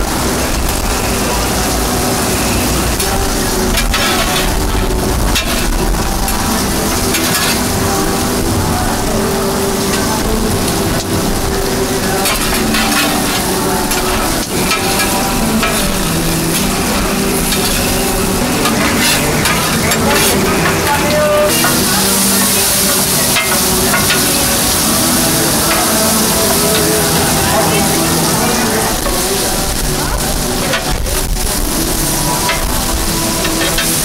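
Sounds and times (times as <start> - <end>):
food sizzling on griddle: 0.0 - 34.0
metal spatulas scraping plate: 3.7 - 4.6, 12.2 - 16.7, 17.5 - 21.9.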